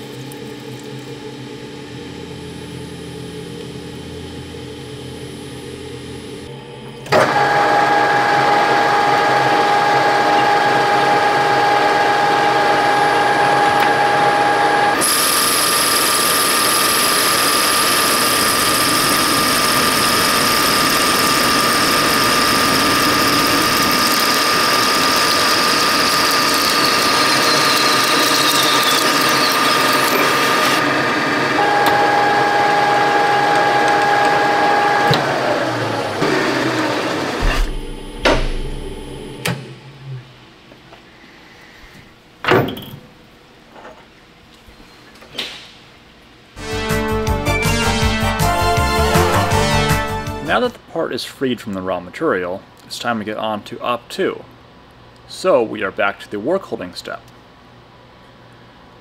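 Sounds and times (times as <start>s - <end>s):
lathe gear whine: 0.0s - 40.6s.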